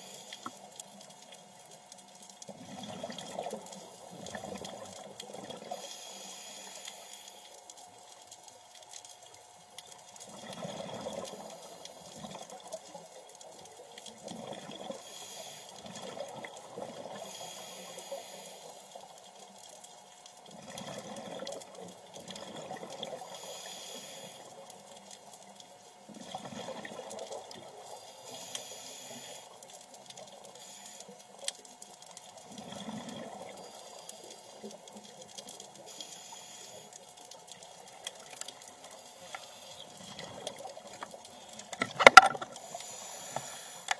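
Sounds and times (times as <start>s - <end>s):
regulator inhalation hiss: 0.0s - 0.6s, 5.7s - 7.6s, 15.0s - 15.8s, 17.1s - 19.1s, 23.2s - 24.6s, 27.9s - 29.6s, 30.4s - 31.2s, 35.8s - 37.0s, 38.8s - 40.1s, 42.5s - 43.9s
bubbly gurgle of exhaled air: 2.5s - 5.8s, 10.2s - 12.8s, 14.1s - 15.0s, 15.8s - 17.3s, 20.5s - 23.5s, 26.0s - 27.9s, 32.4s - 34.0s.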